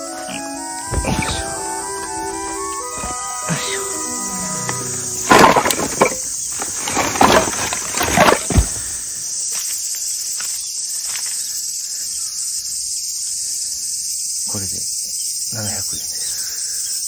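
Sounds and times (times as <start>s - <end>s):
cicadas chorus: 0.0s - 17.0s
firewood logs clattering onto gravel: 4.6s - 9.7s.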